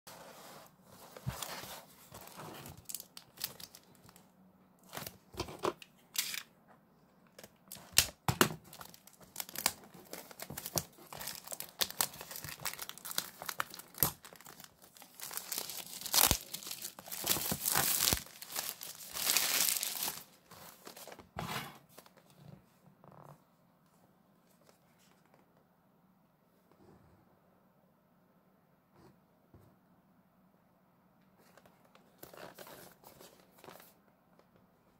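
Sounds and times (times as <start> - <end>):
plastic wrap crinkling: 1.2 - 4.2, 7.6 - 21.2.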